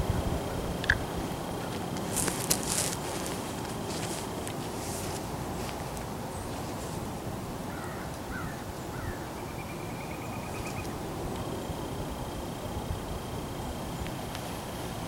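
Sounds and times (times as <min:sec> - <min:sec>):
low outdoor background rumble: 0:00.0 - 0:15.0
distant bird calls: 0:05.8 - 0:12.0.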